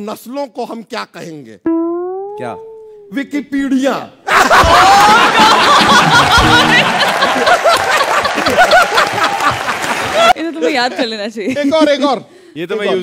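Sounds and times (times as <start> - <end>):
audience laughing: 4.3 - 10.4
hand clapping: 6.3 - 10.3.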